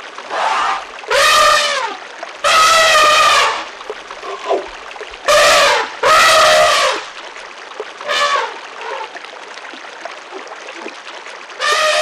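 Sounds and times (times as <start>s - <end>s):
trickle of running water: 0.0s - 12.0s
elephants trumpeting: 0.3s - 1.8s, 2.5s - 3.6s, 5.3s - 7.0s, 11.6s - 12.0s.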